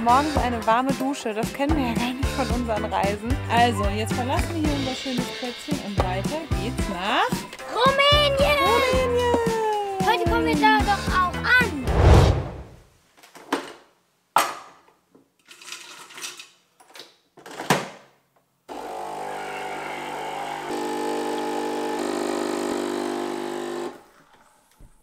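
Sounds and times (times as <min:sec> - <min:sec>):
espresso machine pump humming: 0:18.7 - 0:24.0.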